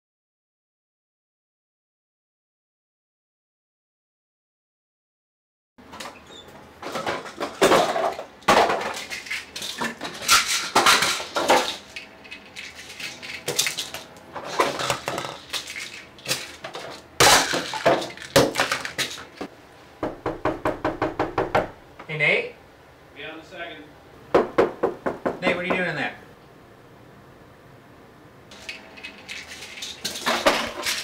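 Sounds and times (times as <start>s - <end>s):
small hard objects clattering: 6.8s - 19.5s, 28.5s - 31.0s
fist knocking on wooden door: 20.0s - 21.8s, 24.3s - 25.8s.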